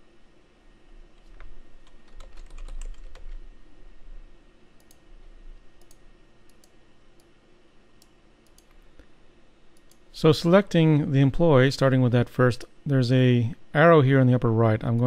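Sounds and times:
computer keyboard typing: 1.2 - 3.4.

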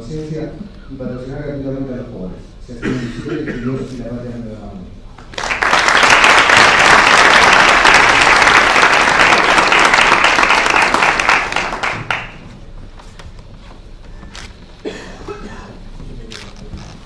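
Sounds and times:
crowd applauding: 5.2 - 12.5.

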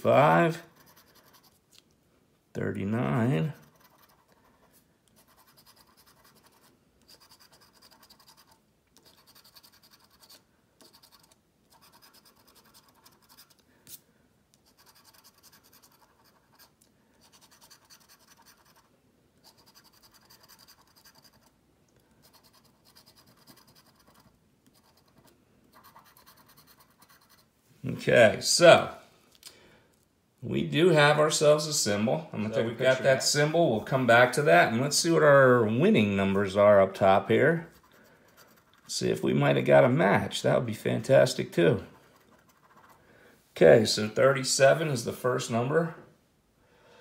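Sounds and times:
coin scratching lottery ticket: 3.5 - 4.5, 5.2 - 13.6, 14.6 - 21.5, 22.2 - 27.4, 37.8 - 38.9, 41.9 - 43.0.

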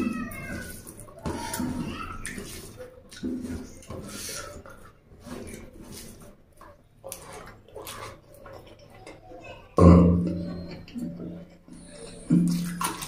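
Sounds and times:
wet chewing and lip smacks: 1.5 - 9.2.

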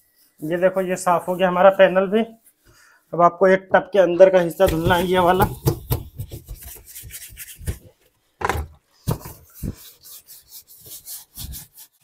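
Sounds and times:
scrubbing wet plastic tub: 4.5 - 7.9.

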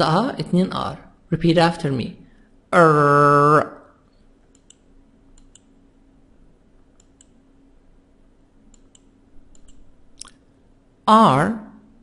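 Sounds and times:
low steady hum: 0.0 - 12.0
computer mouse clicks: 4.1 - 5.8, 6.9 - 7.4, 8.6 - 10.4.

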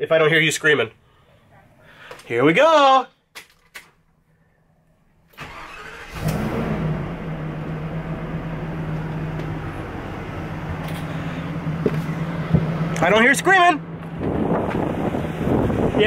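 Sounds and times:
engine cranking and starting: 5.3 - 9.0
engine idling: 5.5 - 16.0.

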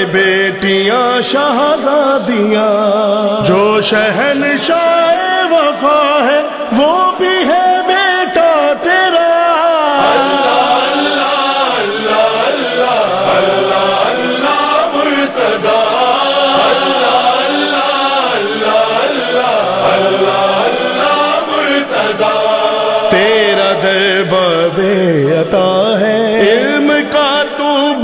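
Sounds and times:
men chanting devotional refrain: 0.0 - 28.0.

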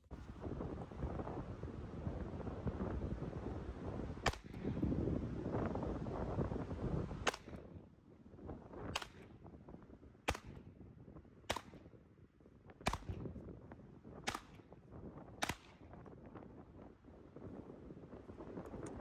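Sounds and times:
pistol shots: 4.2 - 4.6, 7.2 - 7.6, 11.5 - 11.8, 12.8 - 13.2, 15.4 - 15.9.

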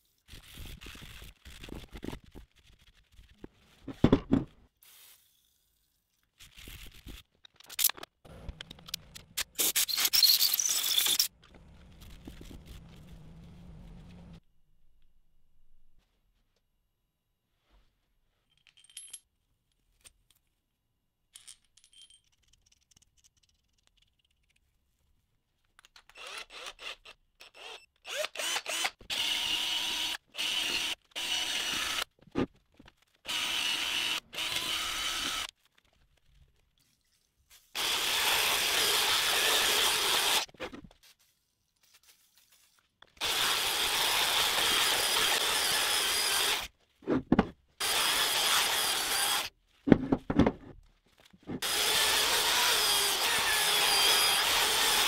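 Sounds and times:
electric drill polishing metal: 27.6 - 32.0, 33.3 - 35.5, 37.8 - 40.5, 43.2 - 46.7, 47.8 - 49.5, 51.6 - 55.0.

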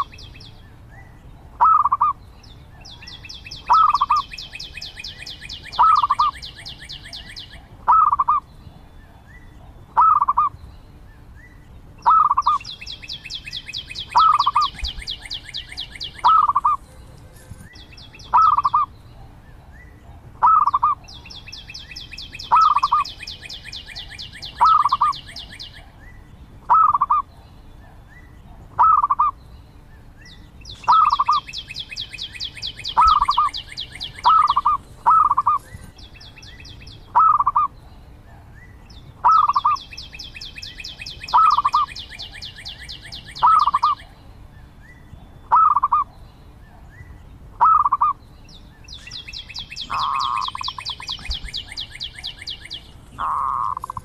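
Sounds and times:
dove calling: 0.0 - 54.0.

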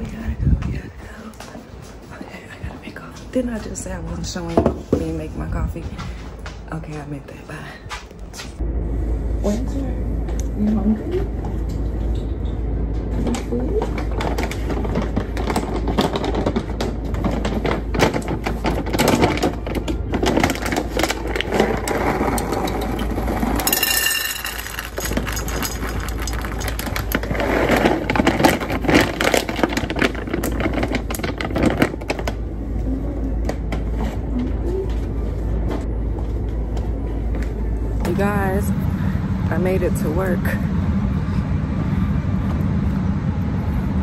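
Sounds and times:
kibble clattering into metal bowls: 14.0 - 32.3
plastic bag crinkling: 24.3 - 32.5.

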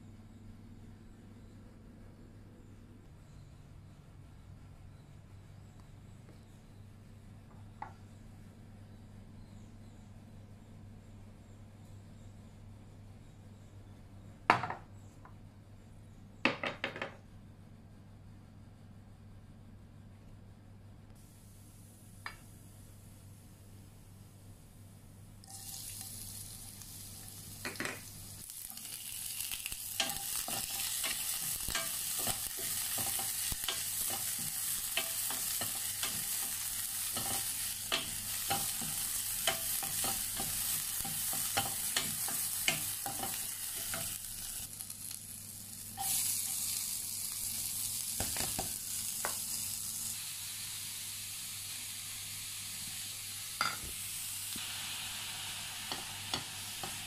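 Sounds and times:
oil sizzling in a pan: 25.4 - 57.0.

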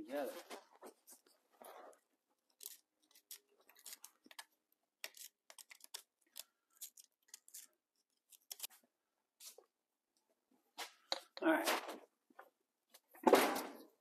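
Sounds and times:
hand tool clicking and scraping: 2.5 - 8.7.

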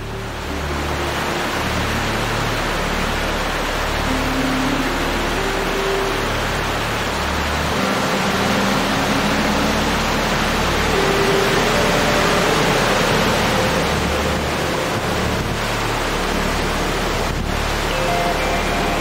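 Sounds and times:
faint background music: 0.0 - 19.0
falling water rushing: 0.0 - 19.0.

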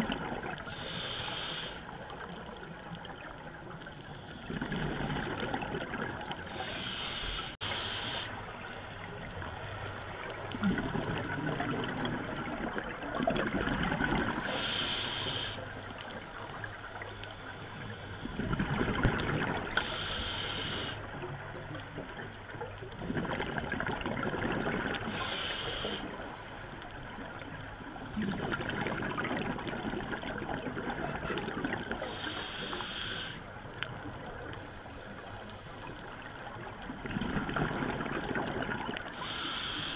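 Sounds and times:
exhaled bubbles burbling: 0.0 - 0.7, 4.5 - 6.5, 10.6 - 14.4, 18.4 - 19.8, 23.0 - 25.1, 28.1 - 32.0, 36.9 - 39.1
regulator inhale hiss: 0.6 - 2.7, 6.4 - 8.9, 14.4 - 16.0, 19.8 - 21.2, 25.1 - 26.6, 32.0 - 33.5, 39.1 - 39.9.

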